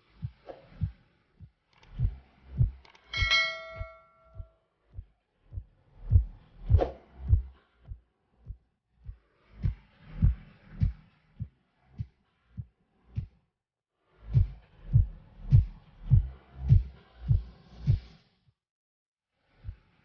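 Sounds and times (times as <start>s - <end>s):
background music with low beat: 0.0s - 13.4s, 14.2s - 18.2s
bell-like notification ding: 3.2s - 4.4s.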